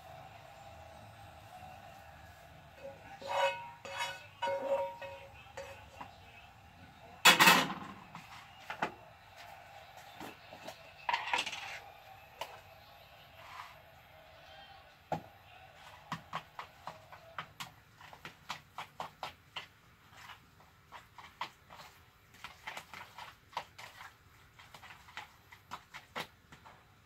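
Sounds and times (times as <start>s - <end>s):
knocks and scrape: 2.8s - 6.2s
frying pan clanking on stove: 3.3s - 5.2s.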